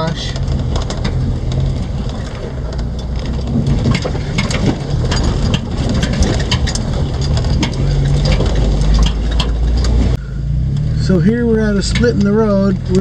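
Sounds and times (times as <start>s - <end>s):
tyres crunching over stones: 0.0s - 10.2s
engine drone: 0.0s - 13.0s
rocks clicking and vehicle rattling: 0.0s - 13.0s.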